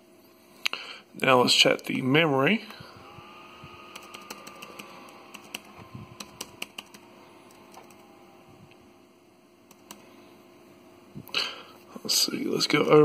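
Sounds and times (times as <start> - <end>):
laptop keys clicking: 3.8 - 8.2, 9.7 - 10.1.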